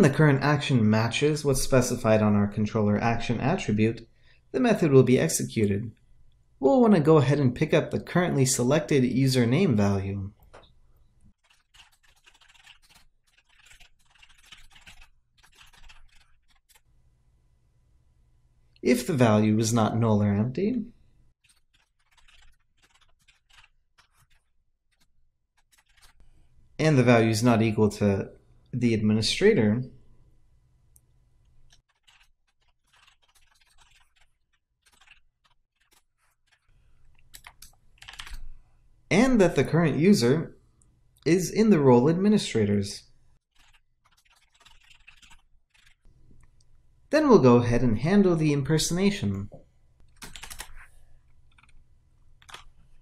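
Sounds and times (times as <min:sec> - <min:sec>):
keyboard typing: 0:11.3 - 0:16.8, 0:21.4 - 0:26.2, 0:31.6 - 0:38.6, 0:43.5 - 0:46.1, 0:50.0 - 0:51.8, 0:52.4 - 0:53.0.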